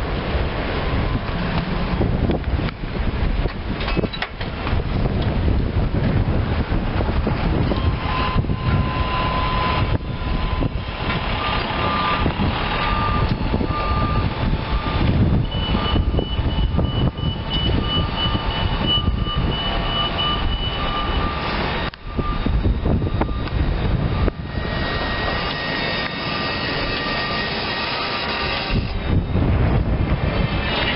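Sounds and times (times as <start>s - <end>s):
wind rumbling on microphone: 0.0s - 30.9s
faint beep: 7.7s - 29.5s.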